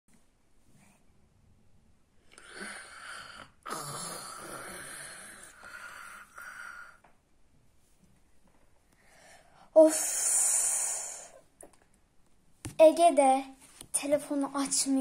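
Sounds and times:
person snoring wheezily: 2.4s - 7.0s.

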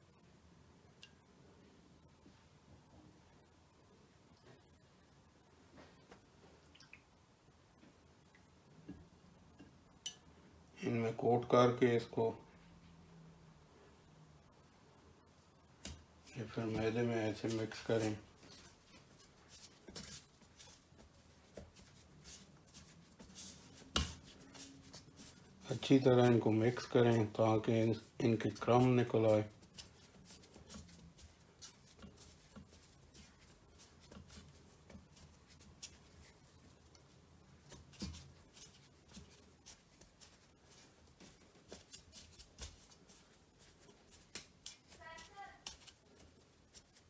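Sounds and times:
rustling of food in flour: 15.4s - 47.0s.

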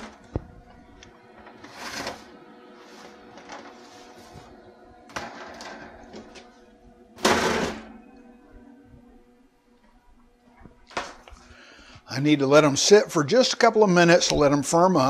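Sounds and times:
metal sheet scraping on oven rack: 1.4s - 6.6s, 7.2s - 8.0s.

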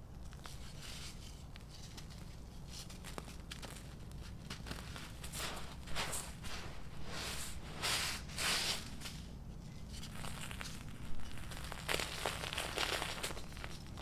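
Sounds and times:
sand and charcoal crunching: 0.2s - 14.0s
palm sweeping through grit: 4.8s - 9.4s.

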